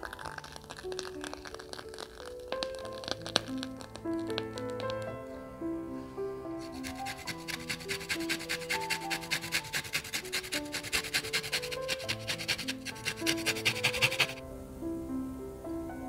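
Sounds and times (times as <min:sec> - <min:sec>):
lemon peel rasping on grater: 0:06.6 - 0:14.4.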